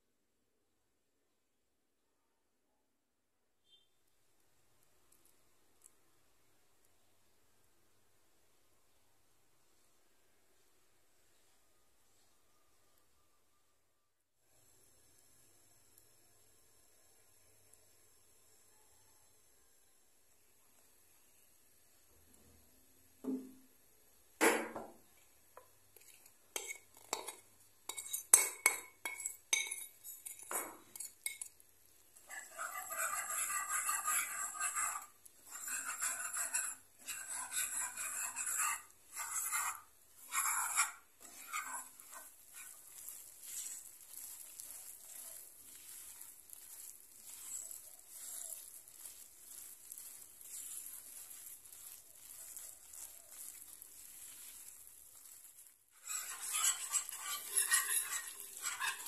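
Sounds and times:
faint sizzle: 0.0 - 59.0
light tapping in a pan: 23.2 - 23.7
whisk scraping in frying pan: 25.0 - 59.0
spatula scraping pan: 25.6 - 59.0.

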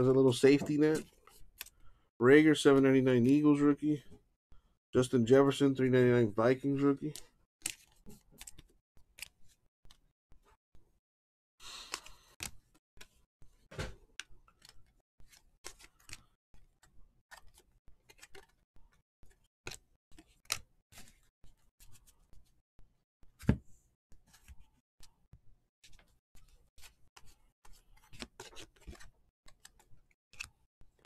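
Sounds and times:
trading cards being flipped: 7.1 - 10.0, 14.2 - 18.6, 25.9 - 30.6.

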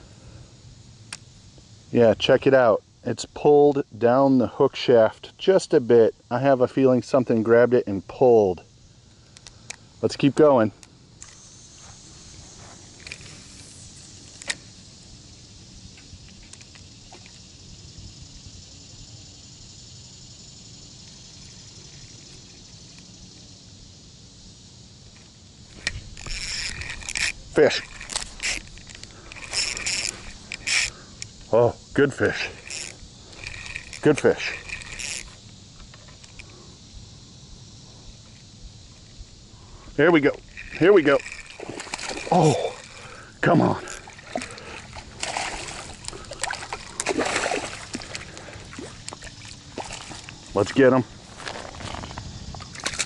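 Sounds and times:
high insect drone: 0.0 - 53.0
fish splashing in water: 41.2 - 43.2, 43.9 - 50.5.

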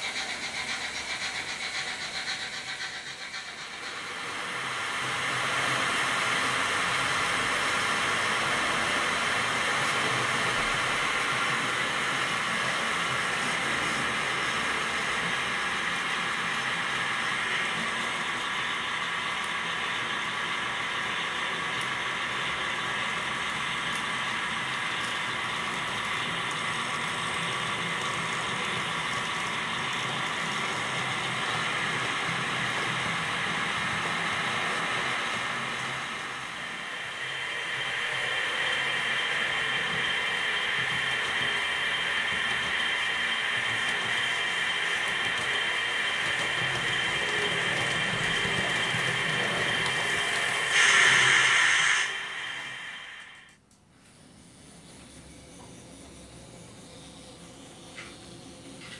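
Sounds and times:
wheels rolling on track: 0.0 - 52.8
model train motor whirring: 0.0 - 53.6
loud hiss: 49.9 - 53.5.

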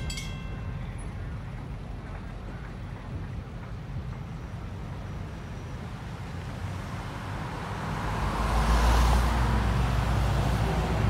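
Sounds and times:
road traffic: 0.0 - 11.0.

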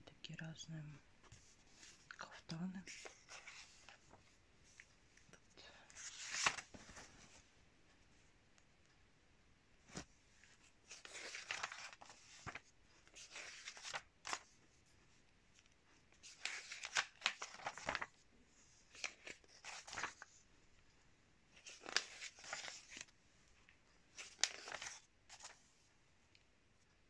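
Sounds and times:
magazine pages turning: 2.9 - 4.9, 5.9 - 7.4, 9.9 - 14.6, 16.1 - 18.2, 18.9 - 20.4, 21.5 - 23.1, 24.1 - 25.7.

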